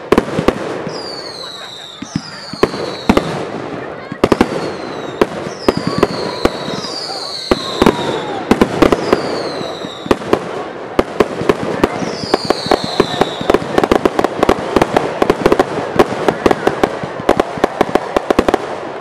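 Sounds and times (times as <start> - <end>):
firework bangs: 0.0 - 19.0
falling firework whistles: 0.8 - 3.4, 4.2 - 10.2, 11.9 - 13.7.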